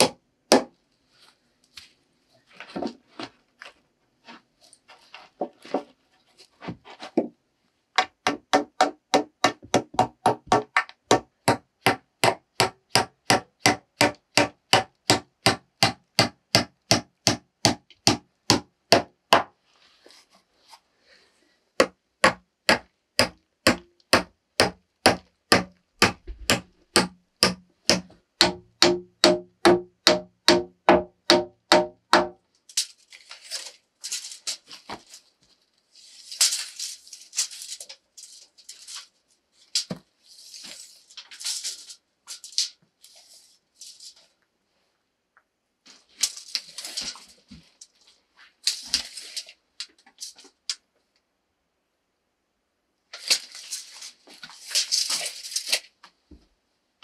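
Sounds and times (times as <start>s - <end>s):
hammer driving nails into wood: 0.0s - 0.7s, 8.0s - 19.5s, 21.8s - 32.4s.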